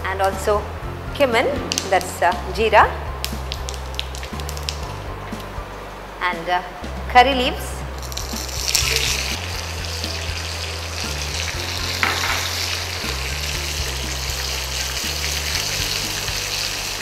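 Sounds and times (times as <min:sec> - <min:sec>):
spices sizzling in hot oil: 0:03.1 - 0:05.5, 0:08.0 - 0:17.0.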